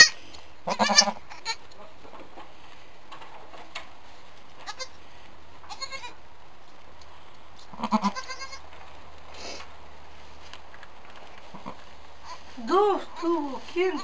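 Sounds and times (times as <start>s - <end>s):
goats bleating: 0.7s - 1.6s, 7.8s - 8.6s.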